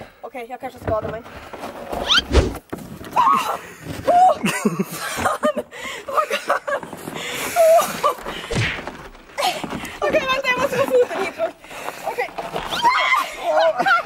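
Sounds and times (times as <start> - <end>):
people shrieking and gasping: 3.1 - 4.9, 5.7 - 10.2, 11.6 - 14.0
people laughing: 4.1 - 8.3, 13.2 - 14.0.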